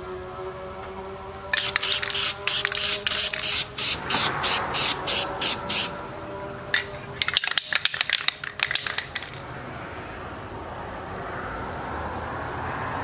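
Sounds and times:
spray can ball rattling: 1.5 - 6.0, 6.7 - 9.5
steady spray noise: 1.5 - 9.4.

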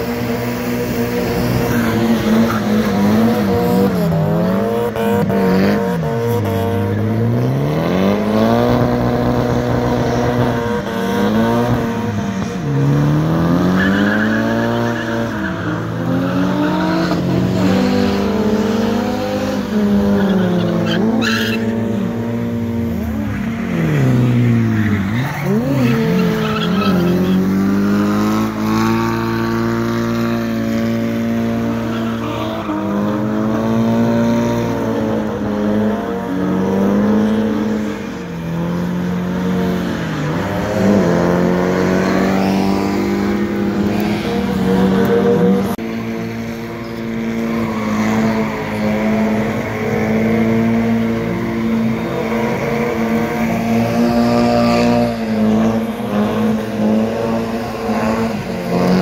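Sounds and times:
car engines revving: 0.0 - 59.0.

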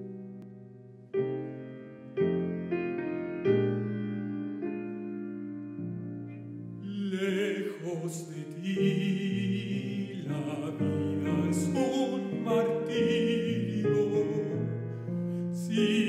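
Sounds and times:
piano accompaniment: 0.0 - 16.0
man singing with vibrato: 6.8 - 14.9, 15.5 - 16.0.

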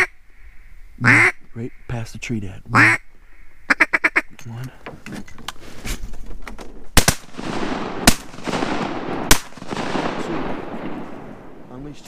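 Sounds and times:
shotgun blasts with echo: 7.0 - 11.9.

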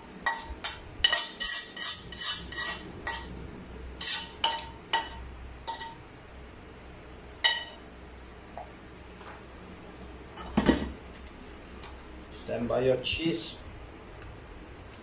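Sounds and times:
metal utensil scraping frying pan: 0.2 - 3.4, 4.0 - 6.0.

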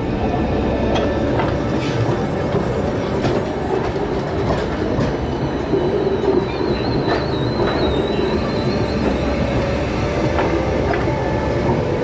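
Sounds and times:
tram rumbling past: 0.0 - 12.0
high wheel squeal: 5.1 - 10.1.

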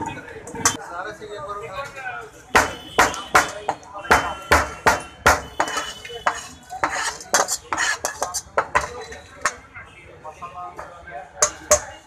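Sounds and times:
metal utensils clanking on cookware: 2.6 - 9.7, 11.4 - 12.0.

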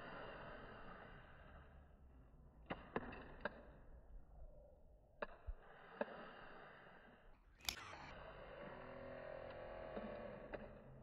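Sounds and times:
soft clicks: 7.6 - 8.0.

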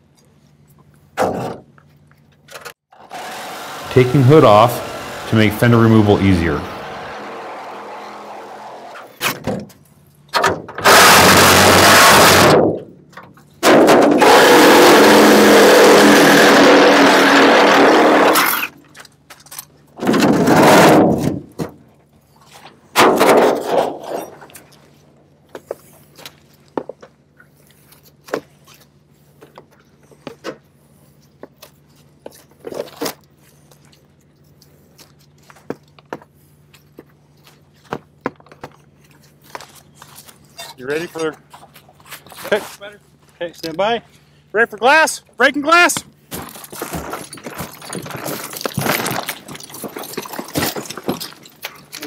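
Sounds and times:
metal scraping and crunching: 0.7 - 26.8, 46.2 - 52.0
knocks and clanks: 9.2 - 14.8, 19.3 - 21.8, 23.0 - 24.6, 46.0 - 52.0.

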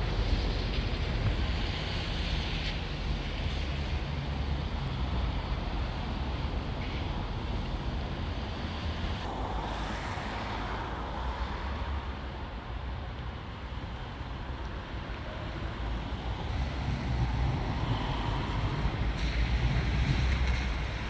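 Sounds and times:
wind buffeting microphone: 15.4 - 21.0.

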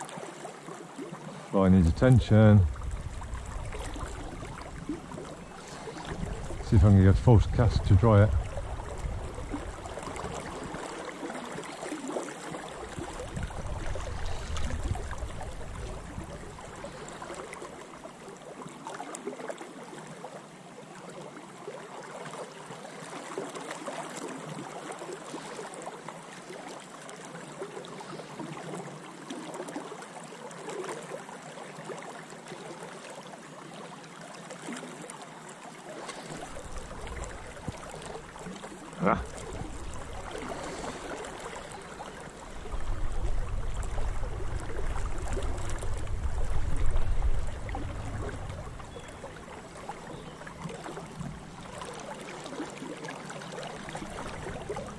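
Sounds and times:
river rushing: 1.0 - 18.3, 35.9 - 54.9
low rumble: 42.5 - 49.5.

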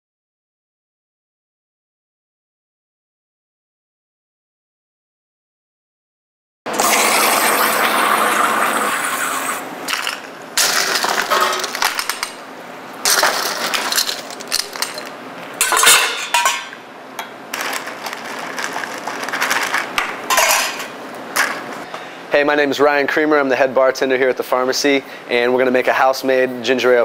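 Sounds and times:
glassware clinking: 13.1 - 17.3, 20.3 - 20.9.

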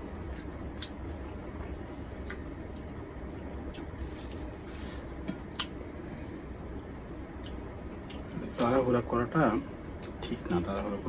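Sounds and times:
chewing: 0.0 - 8.6
low hum: 0.0 - 11.0.

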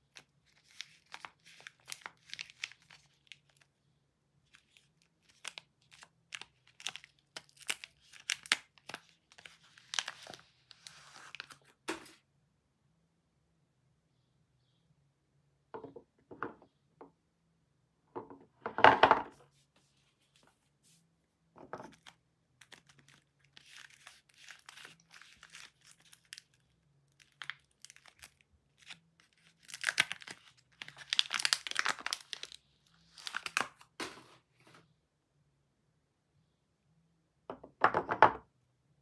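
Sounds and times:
paper wrapper crinkling and tearing: 0.0 - 3.7, 4.4 - 11.8, 21.9 - 34.3.

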